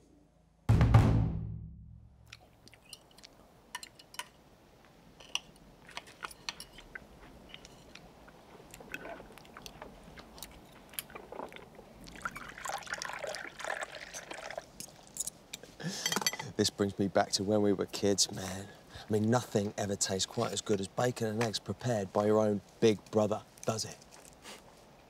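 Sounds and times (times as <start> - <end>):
coffee pouring into cup: 11.3 - 14.8.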